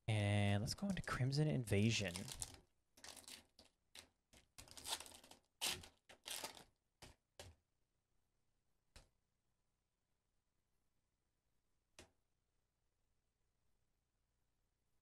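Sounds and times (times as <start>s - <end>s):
foil pack tearing and crinkling: 2.1s - 3.7s, 4.6s - 6.7s.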